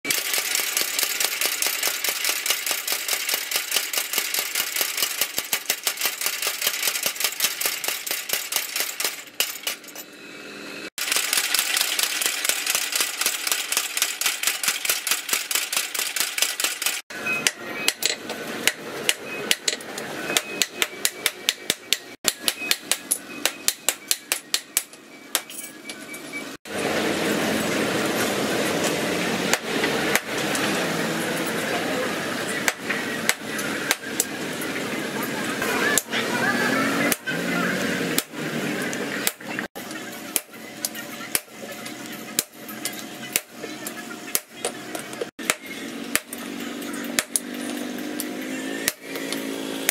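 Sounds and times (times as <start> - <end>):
hammers striking steel on anvil: 17.4 - 25.6, 32.7 - 34.3, 45.4 - 48.1.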